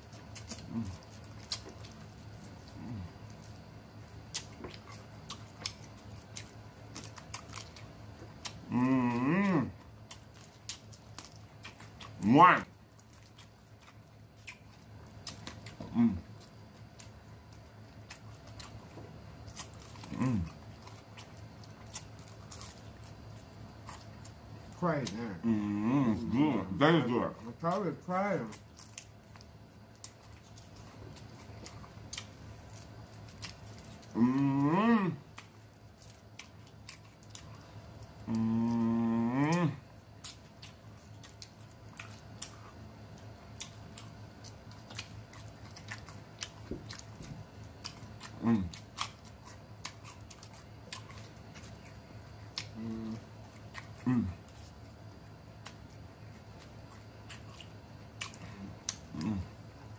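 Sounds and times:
people chewing chicken wings: 0.0 - 59.9
man humming mmm: 0.7 - 1.0, 2.7 - 3.1, 8.6 - 9.8, 15.8 - 16.3, 20.0 - 20.6, 25.2 - 26.8, 34.0 - 35.3, 38.2 - 39.8, 48.4 - 48.8, 52.7 - 53.3, 54.0 - 54.4, 58.6 - 59.6.

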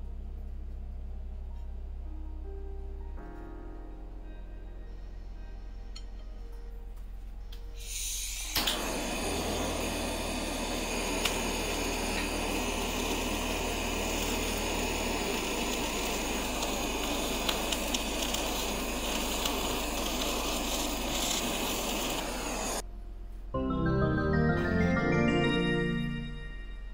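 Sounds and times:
blowtorch flame hissing: 7.8 - 22.8
blowtorch ignition click: 7.8 - 22.8.

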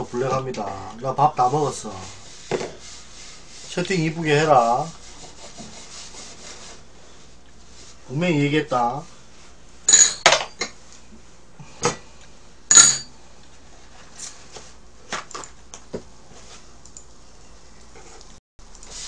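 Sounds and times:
tableware clattering: 9.9 - 10.8, 12.7 - 13.1.

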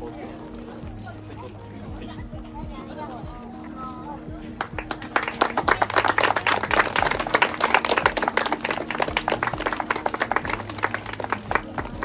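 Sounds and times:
background music: 0.0 - 12.0
crowd applauding: 4.5 - 12.0.

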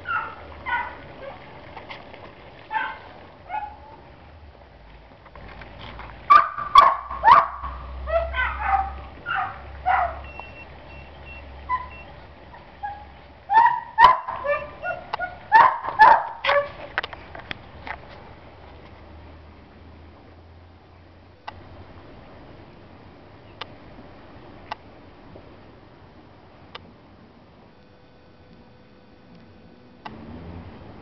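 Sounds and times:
dogs yipping and whining: 0.0 - 1.5, 2.7 - 4.0, 6.3 - 16.9.

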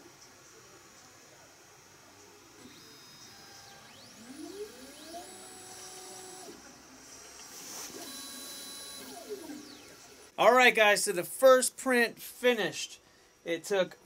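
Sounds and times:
stepper motors whining: 2.6 - 10.3.

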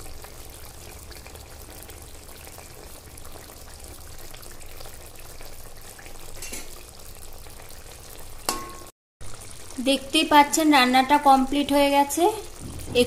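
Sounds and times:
curry bubbling in a pan: 0.0 - 13.0
metal spatula clinking on pan: 8.5 - 8.9.

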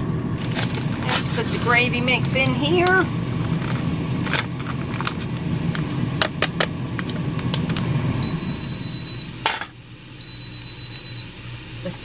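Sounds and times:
steady low hum: 0.0 - 12.0
air fryer timer beeping: 8.1 - 9.4, 10.2 - 12.0.

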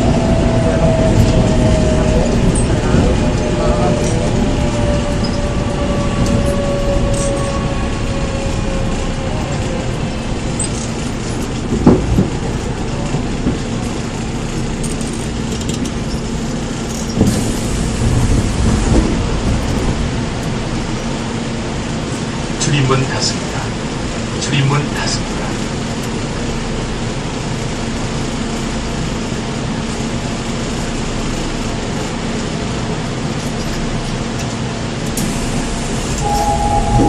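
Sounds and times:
train motor whine: 0.0 - 22.2, 35.0 - 37.0
wheel and track rumble: 0.0 - 37.0.

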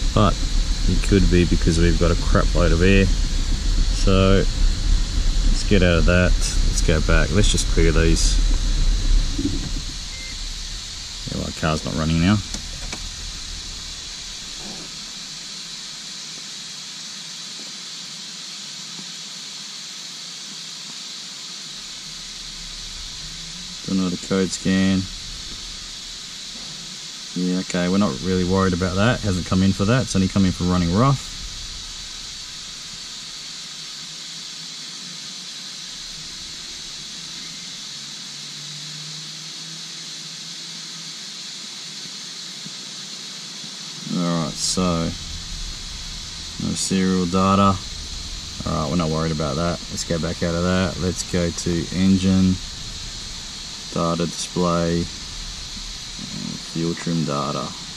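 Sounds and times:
faint low hum: 0.0 - 16.4, 21.6 - 34.4, 44.0 - 57.9
steady hiss: 0.0 - 57.9.

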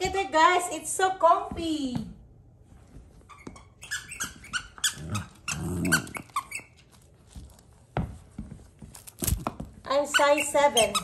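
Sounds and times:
dog whining: 3.4 - 6.9.

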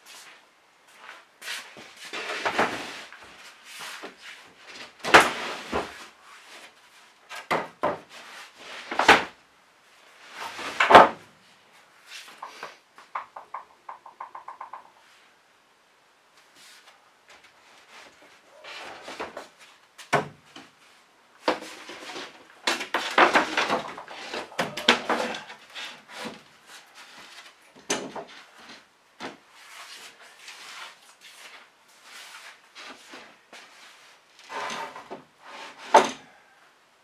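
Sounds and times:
wooden boards scraping: 1.9 - 9.4, 10.2 - 11.2, 17.8 - 19.6, 21.4 - 33.7, 34.4 - 36.2
sharp wooden knocks: 13.0 - 14.9.

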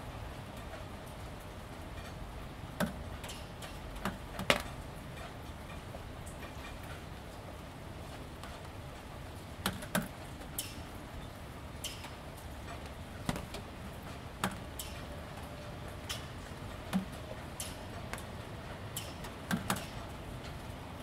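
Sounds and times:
light steady rain: 0.0 - 21.0
drips tapping on plastic panels: 2.0 - 7.0, 9.6 - 10.9, 11.8 - 20.5.

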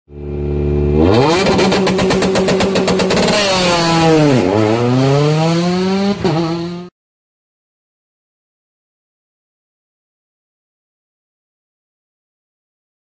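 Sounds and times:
racing engine revving: 0.1 - 6.9.

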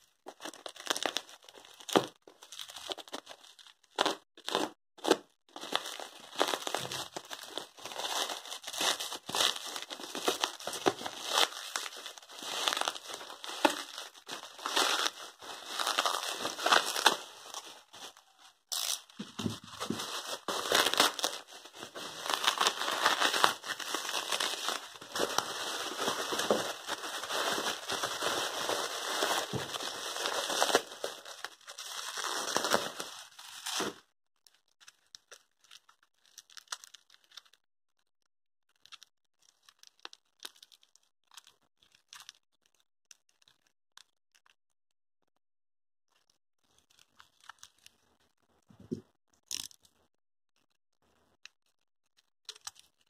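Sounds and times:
bubble wrap crinkling: 0.3 - 34.0
utility knife slitting bubble wrap: 4.0 - 34.0.

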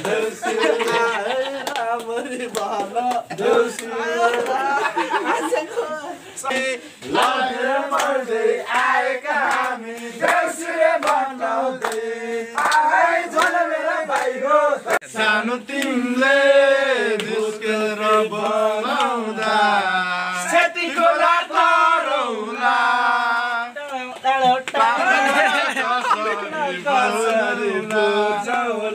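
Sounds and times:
young men chanting and singing: 0.0 - 28.9.

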